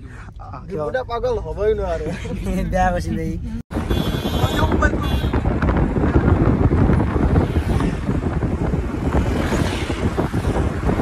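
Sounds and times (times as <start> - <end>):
car road noise: 0.0 - 11.0
wind buffeting microphone: 3.7 - 11.0
vehicle rushing past: 6.6 - 11.0.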